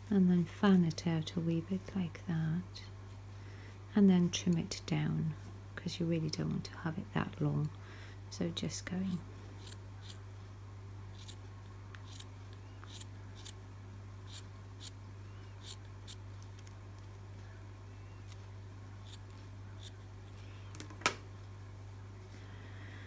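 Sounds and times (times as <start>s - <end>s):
steady low hum: 0.0s - 23.0s
scissors snipping yarn: 11.2s - 13.6s.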